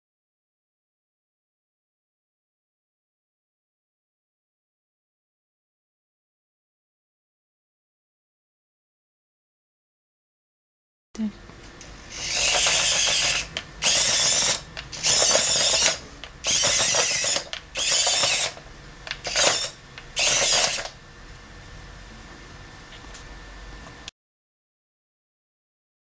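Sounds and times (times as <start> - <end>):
small electric motors whirring: 12.0 - 21.0.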